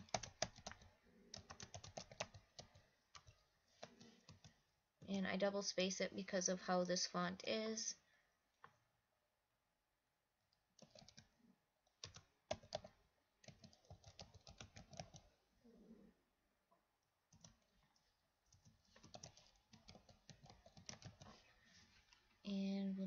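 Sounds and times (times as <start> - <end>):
faint typing on keyboard: 0.0 - 5.4, 10.7 - 15.4, 17.3 - 22.6.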